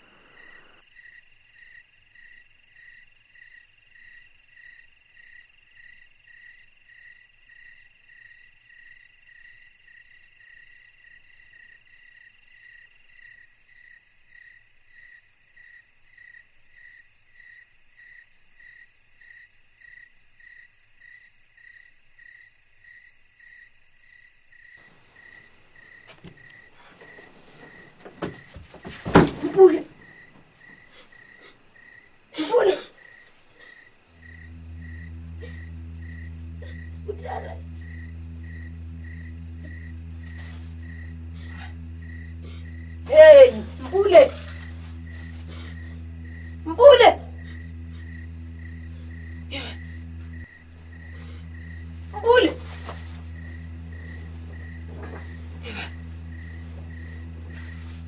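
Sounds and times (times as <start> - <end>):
cricket chirping: 0.0 - 58.0
insect trill: 0.0 - 58.0
blanket rustling: 52.4 - 58.0.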